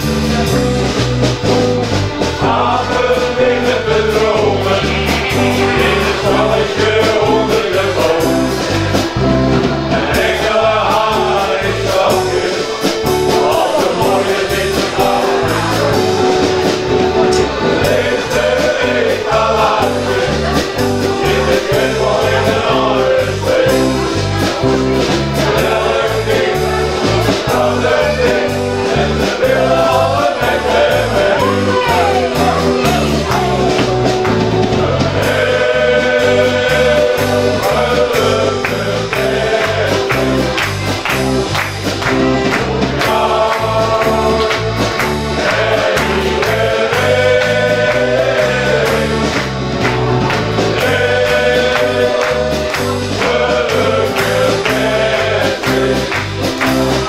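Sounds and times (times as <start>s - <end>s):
instrumental backing with beat: 0.0s - 57.0s
male choir singing: 2.1s - 57.0s.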